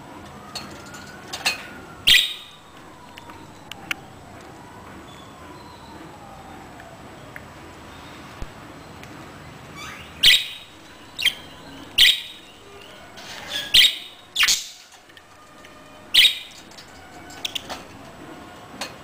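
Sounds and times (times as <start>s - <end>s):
budgerigars chirping: 9.8s - 14.8s, 16.1s - 16.6s.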